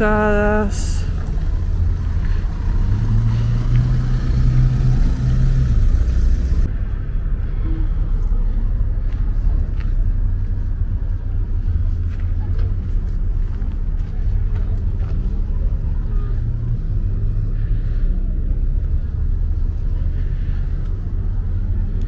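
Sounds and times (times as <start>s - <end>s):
vehicle engine passing: 0.0s - 6.9s
steady low rumble: 0.0s - 22.0s.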